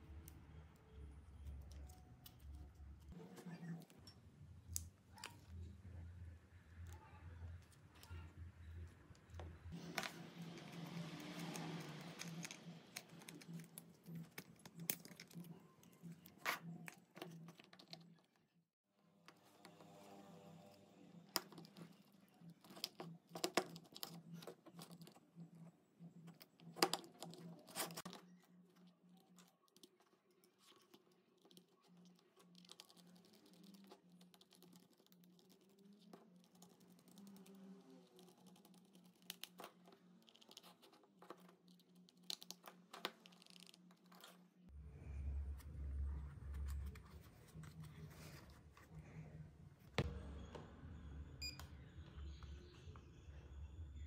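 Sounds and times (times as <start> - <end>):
low hum: 44.7 - 54.0.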